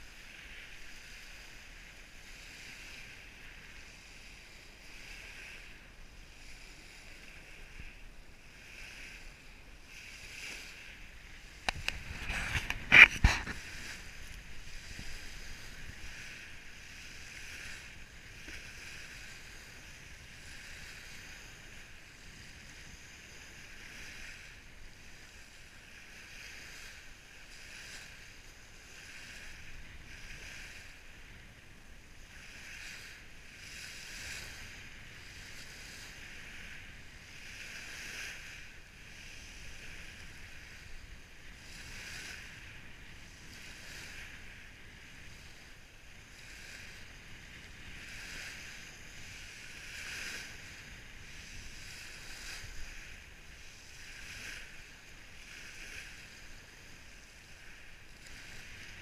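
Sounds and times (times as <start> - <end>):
waves washing over pebbles: 0.0 - 59.0.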